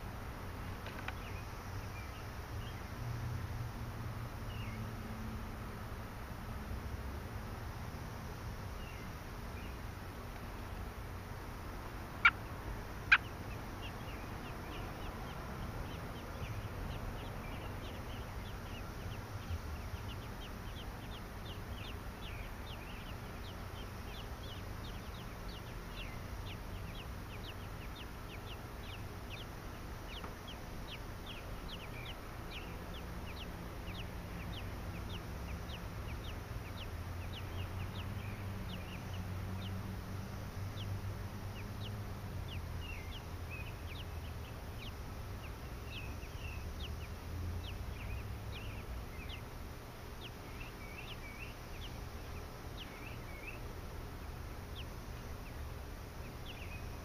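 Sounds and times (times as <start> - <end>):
hatchlings peeping: 0.0 - 57.0
sharp bird chirps: 12.2 - 39.8, 40.7 - 49.5, 50.2 - 53.7.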